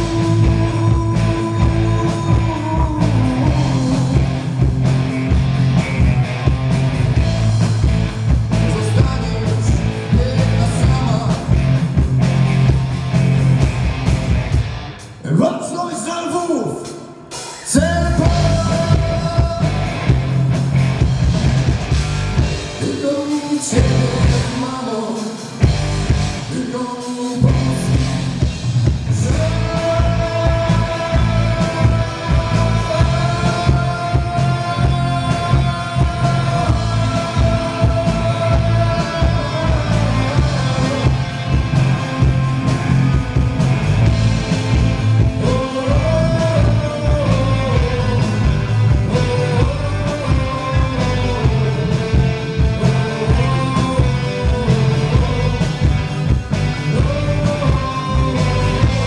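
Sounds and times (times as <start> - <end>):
person singing: 0.0 - 4.6, 15.2 - 20.3, 22.7 - 25.7, 26.4 - 28.2, 29.1 - 42.8, 45.2 - 59.0
live rock band playing: 0.0 - 59.0.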